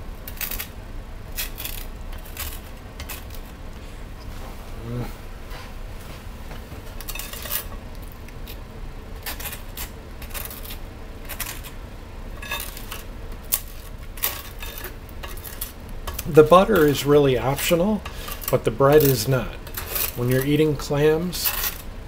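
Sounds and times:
knife scraping butter on toast: 9.2s - 11.8s, 12.4s - 20.6s, 21.4s - 21.8s.

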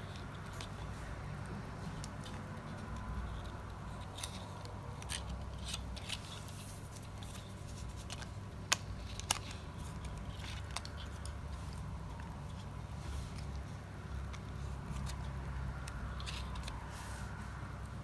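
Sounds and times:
plastic parts clicking: 8.0s - 12.7s.

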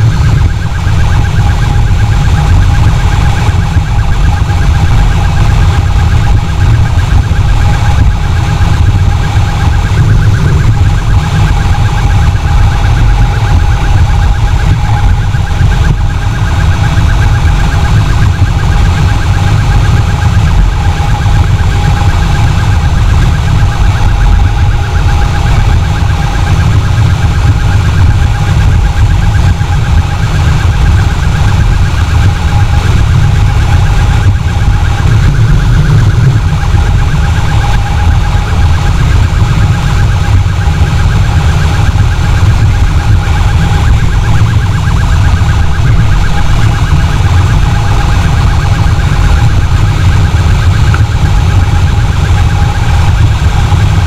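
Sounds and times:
pulsing electronic siren: 0.0s - 54.0s.

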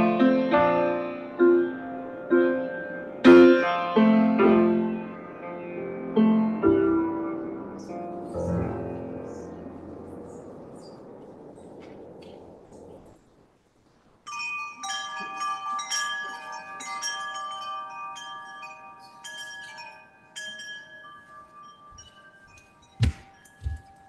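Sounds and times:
chimes ringing: 14.2s - 24.0s.

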